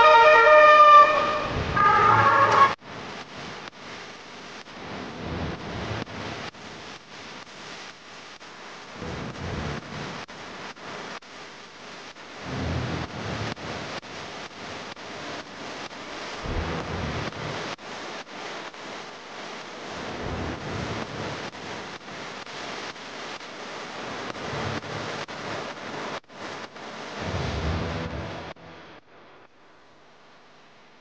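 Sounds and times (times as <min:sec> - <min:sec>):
siren: 0:00.0 - 0:02.8.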